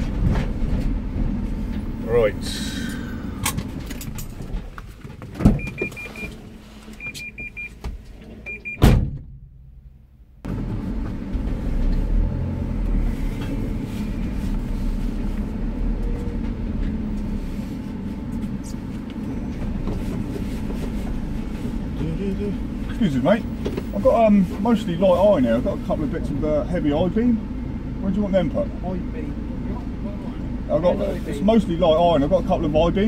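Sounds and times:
van engine rumble: 0.0 - 33.0
high electronic beeps: 5.6 - 6.3.

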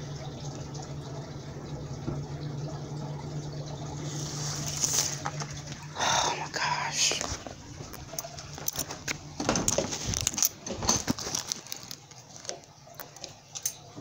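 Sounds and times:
phone handling rustling and clicks: 8.6 - 12.6.

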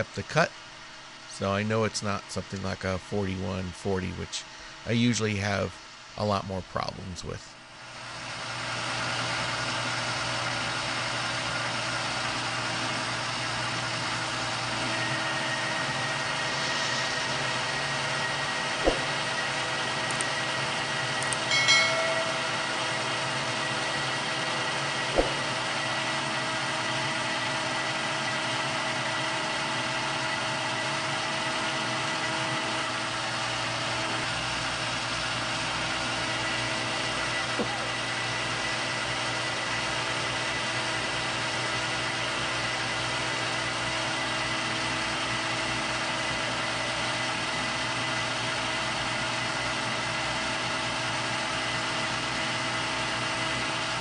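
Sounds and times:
metal lathe humming: 8.0 - 54.0
short ringing chime: 21.4 - 23.3.

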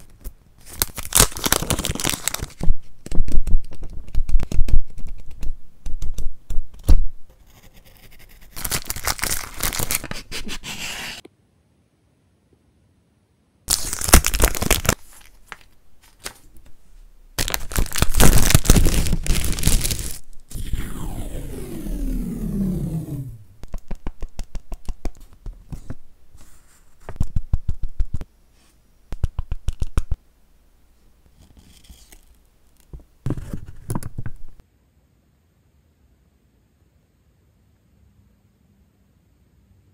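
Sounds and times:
paper rustling and crinkling: 0.0 - 4.6, 8.6 - 11.2, 13.7 - 16.8, 17.4 - 20.4
pages flipping: 0.0 - 5.5, 8.6 - 11.2, 13.7 - 16.8, 17.4 - 20.5, 23.6 - 28.2, 31.4 - 34.6.

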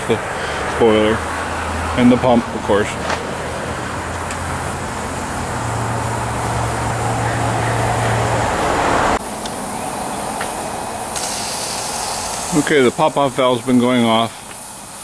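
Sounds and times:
faint steam hiss: 9.2 - 15.0
steam safety valve hissing: 9.2 - 15.0.

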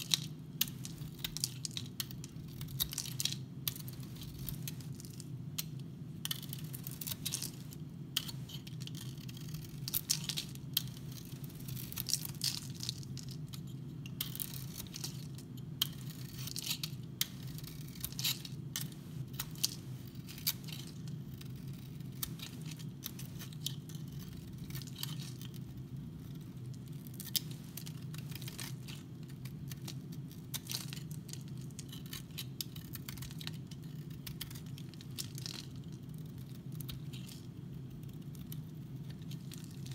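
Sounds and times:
knife scraping soap: 8.2 - 12.9, 15.8 - 18.6.

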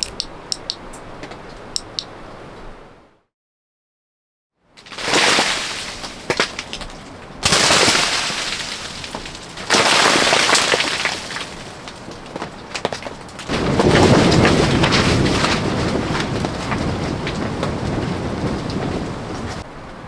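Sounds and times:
wind gusting against tent: 7.0 - 20.0.

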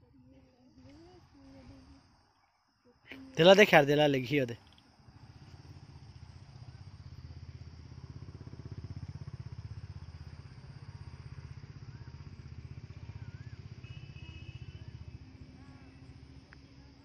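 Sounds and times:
motor engine running: 5.0 - 17.0.

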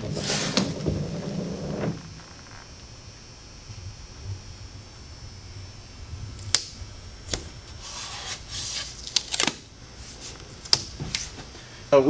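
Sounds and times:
masking tape snapping: 6.4 - 7.5, 9.0 - 9.7, 10.6 - 11.3
hand rubbing tape: 7.3 - 11.5.

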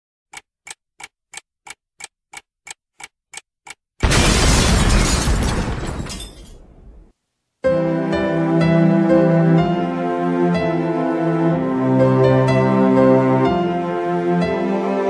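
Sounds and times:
clock ticking: 0.3 - 3.8
loud boom: 4.0 - 6.0.

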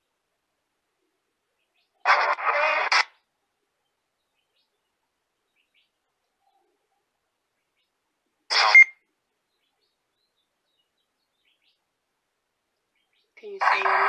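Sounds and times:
garbled chirpy voice fragments: 13.4 - 14.0.

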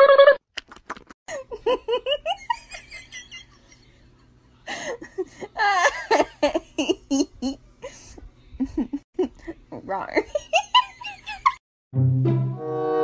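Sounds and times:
person laughing: 1.3 - 11.6.

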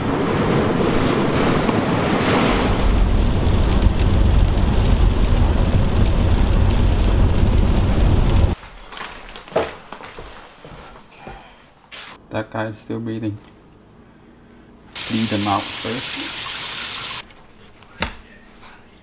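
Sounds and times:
wind and surf: 0.0 - 8.6
rain on windshield: 2.7 - 8.6
car interior road noise: 3.0 - 8.6.

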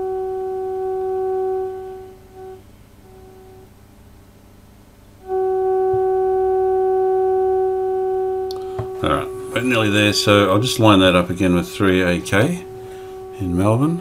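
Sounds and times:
steady test tone from radio speaker: 0.0 - 3.8, 5.2 - 14.0.

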